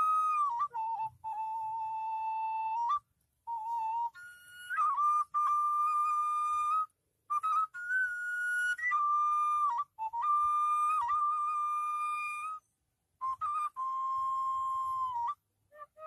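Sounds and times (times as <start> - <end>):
solo flute melody: 0.0 - 16.0.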